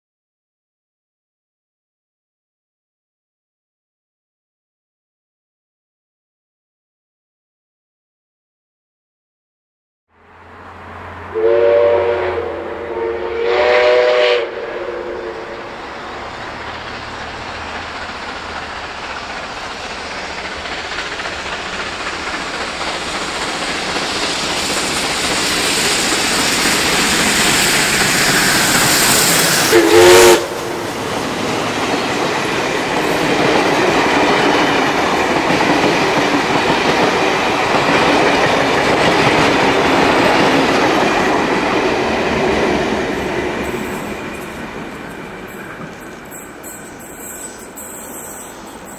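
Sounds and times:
train approaching and rolling past: 10.1 - 48.9
steam locomotive whistle: 11.1 - 16.2, 24.5 - 33.3, 45.5 - 48.9.

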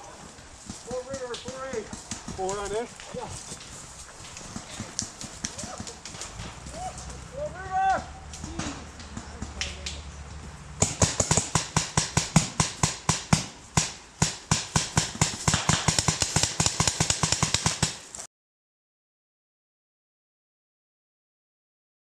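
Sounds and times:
rapid sharp clicks: 10.8 - 18.2.

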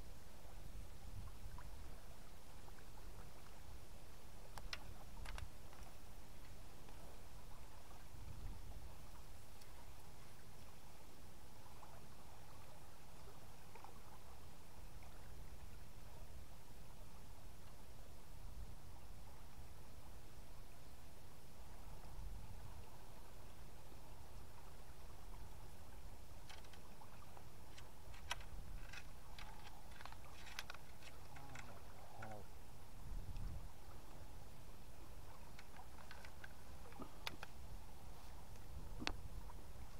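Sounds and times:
water splashing and gurgling: 24.6 - 39.9.

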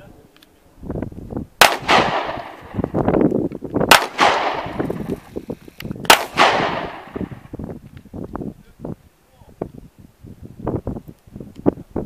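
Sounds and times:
gunshots with ringing tail: 1.6 - 3.0, 3.9 - 5.2, 6.0 - 7.5.

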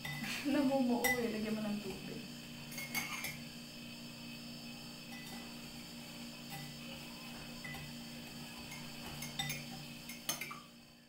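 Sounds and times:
utensils clinking on ceramic: 0.0 - 0.3, 1.0 - 1.4, 2.7 - 3.5, 8.6 - 10.7
steady low hum: 0.0 - 11.0.

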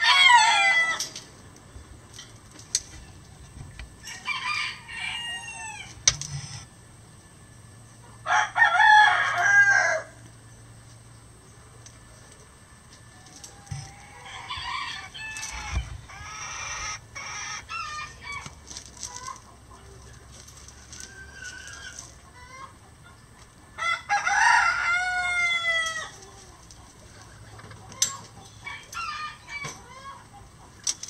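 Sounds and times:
roosters crowing: 0.0 - 1.5, 2.9 - 6.9, 8.0 - 10.7, 12.4 - 31.0
chicken calls: 2.8 - 6.7, 12.3 - 31.0.

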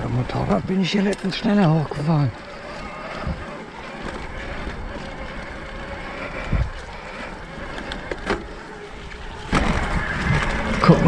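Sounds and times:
bike tyre riding noise: 0.0 - 11.0
faint electric motor whine: 0.0 - 11.0
bike knocking over bumps: 7.6 - 11.0.

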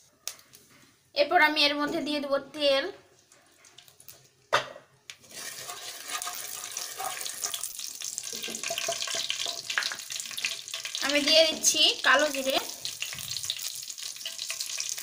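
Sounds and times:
oil crackling and sizzling: 3.2 - 4.4, 5.1 - 15.0.

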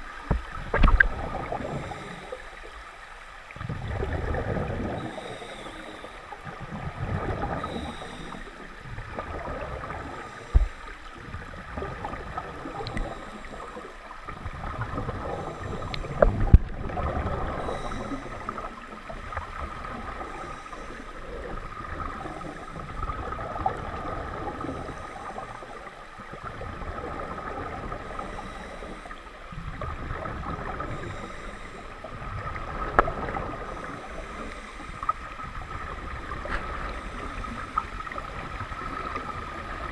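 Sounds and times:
regulator breathing bubbles: 3.7 - 11.0.

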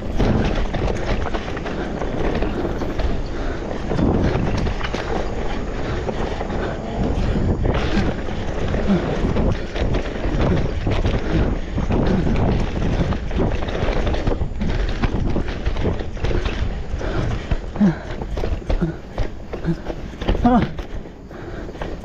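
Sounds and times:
bike rattling on rough trail: 0.0 - 22.0
wind buffeting microphone: 0.0 - 22.0.

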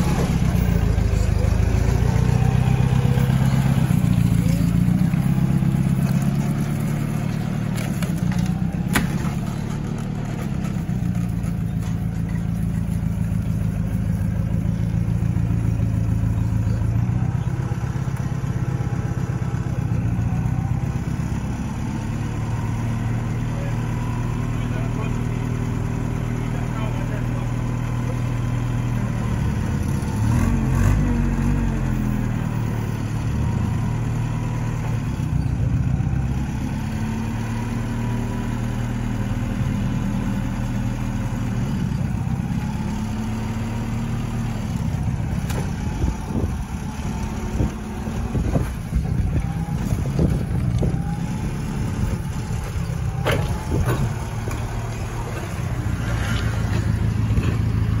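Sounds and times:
forklift engine running: 0.0 - 58.0.

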